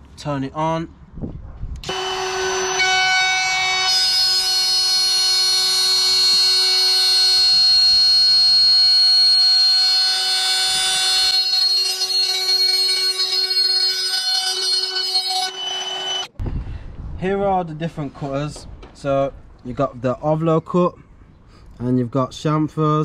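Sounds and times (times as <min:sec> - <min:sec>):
router motor whining: 0:01.8 - 0:16.3.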